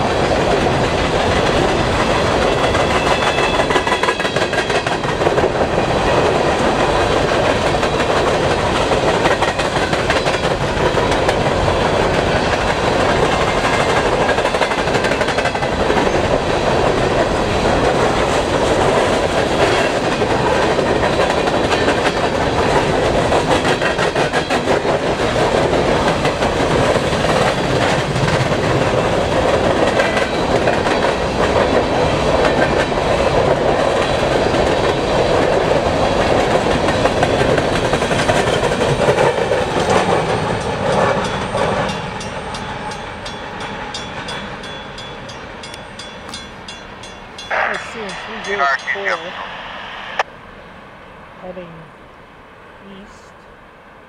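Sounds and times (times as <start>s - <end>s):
freight train wheels rumbling: 0.0s - 50.3s
wheel clickety-clack: 0.6s - 17.0s, 17.9s - 43.3s.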